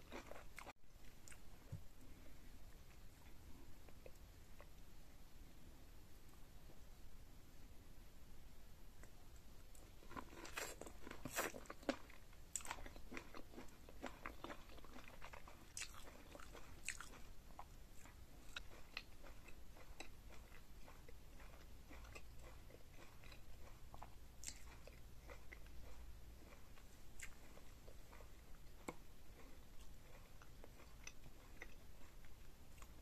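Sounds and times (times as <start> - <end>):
chewing and biting seafood: 10.0 - 33.0.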